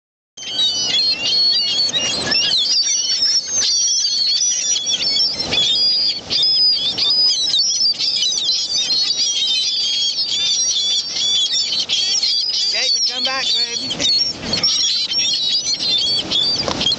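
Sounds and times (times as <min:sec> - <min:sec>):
gulls calling: 0:00.4 - 0:16.9
surf washing: 0:12.6 - 0:16.9.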